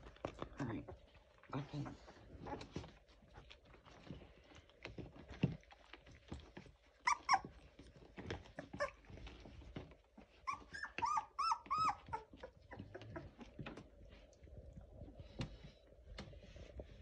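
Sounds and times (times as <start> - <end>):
puppies whimpering: 6.6 - 13.7.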